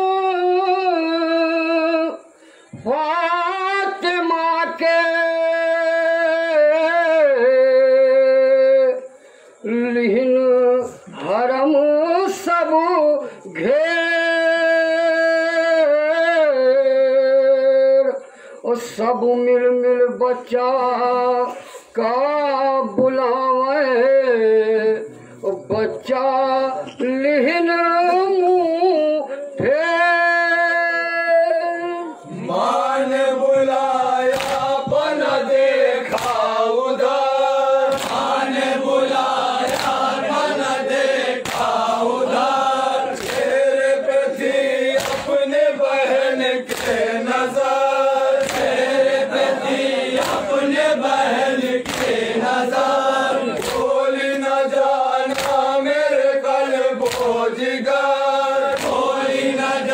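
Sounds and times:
men chanting a lament in unison: 0.0s - 59.9s.

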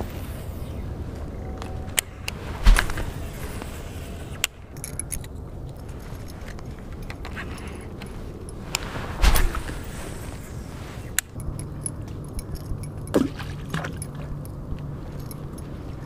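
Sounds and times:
fishing reel whirring: 0.0s - 5.3s
fishing reel clicks and rattles: 1.6s - 8.6s
rustle: 1.8s - 16.0s.

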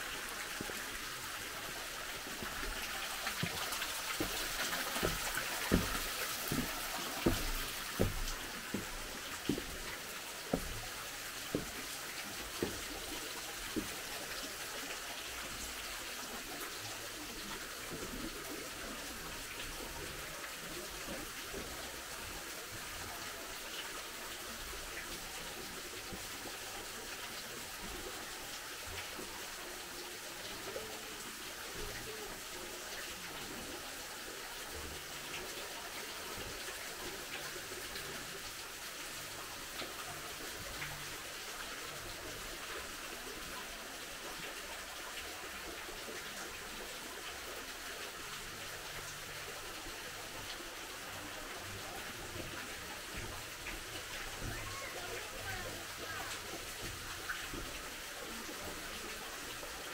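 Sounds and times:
water running: 0.0s - 59.9s
short knocks: 4.2s - 8.9s.

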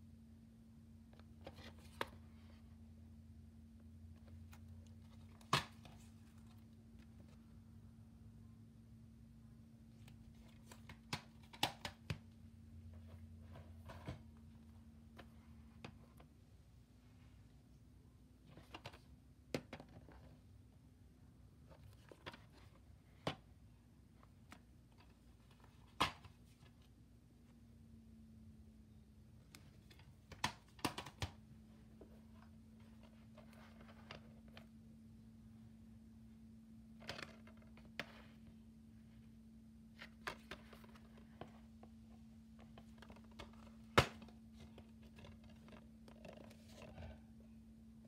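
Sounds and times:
low steady hum: 0.0s - 48.0s.

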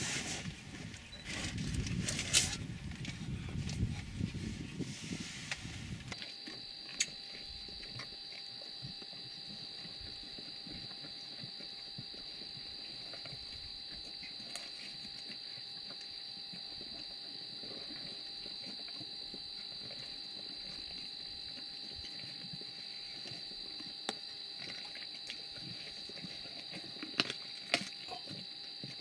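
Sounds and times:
high insect drone: 5.5s - 29.0s
lions crunching and tearing carcass: 6.1s - 29.0s.

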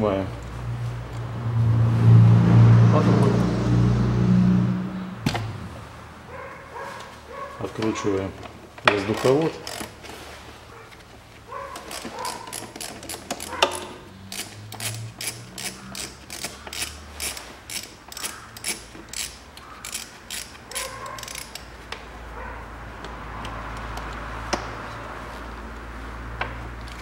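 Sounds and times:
ratchet wrench clicking: 8.9s - 10.0s, 11.8s - 21.8s.

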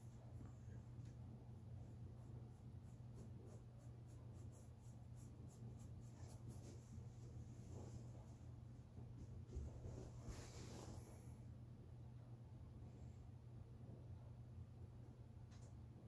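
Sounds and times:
low steady hum: 0.0s - 16.0s
brush strokes on canvas: 1.9s - 8.5s, 9.2s - 11.3s.

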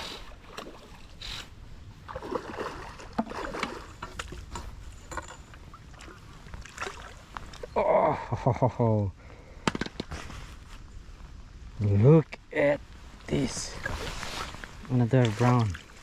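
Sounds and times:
water splashing and sloshing: 0.0s - 7.7s, 13.0s - 16.0s.

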